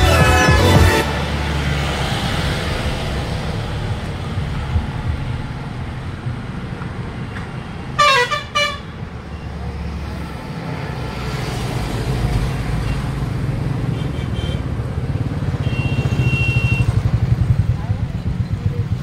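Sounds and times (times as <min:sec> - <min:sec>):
low rumble of road vehicles: 0:01.0 - 0:19.0
vehicle horn double honk: 0:08.0 - 0:08.8, 0:15.6 - 0:17.0.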